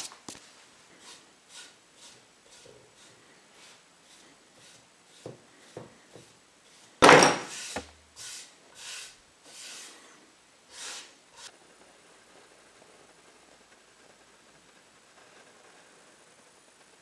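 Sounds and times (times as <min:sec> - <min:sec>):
palm swishing across wood: 0:01.0 - 0:10.1.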